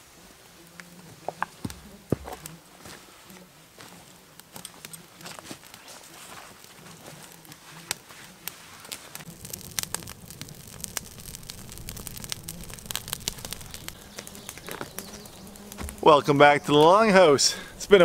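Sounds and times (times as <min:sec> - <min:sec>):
twig fire crackling: 0:00.0 - 0:18.0
fire popping: 0:00.6 - 0:18.0.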